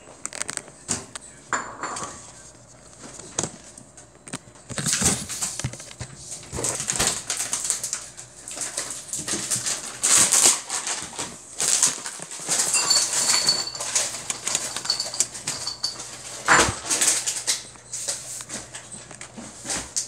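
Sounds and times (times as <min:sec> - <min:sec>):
detergent pods rattling in plastic tub: 0:06.6 - 0:17.7.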